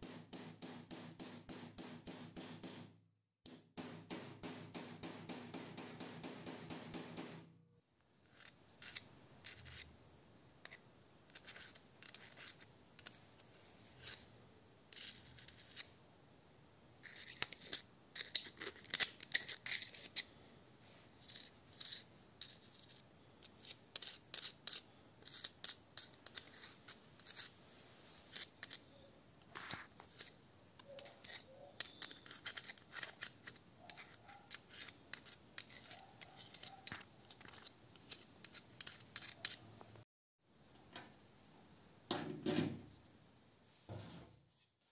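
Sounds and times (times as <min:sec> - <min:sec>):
metal tool scraping and clicking: 0:08.3 - 0:09.9, 0:10.6 - 0:14.2, 0:17.0 - 0:20.3, 0:21.2 - 0:27.6, 0:28.3 - 0:39.8.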